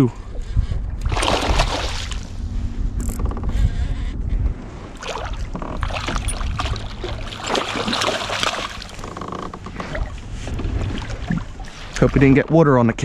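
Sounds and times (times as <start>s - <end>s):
low wind rumble: 0.0s - 13.0s
fish splashing in water: 1.0s - 2.3s, 5.0s - 9.0s.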